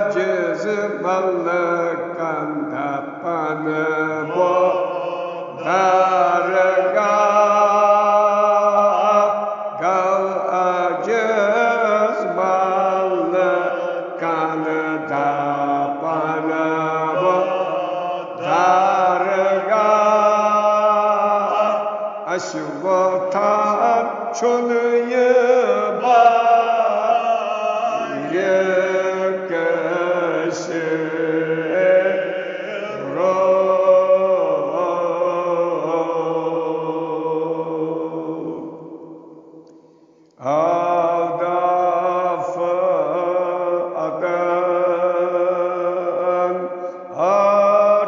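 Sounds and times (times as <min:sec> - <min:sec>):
man chanting elegy: 0:00.0 - 0:36.6.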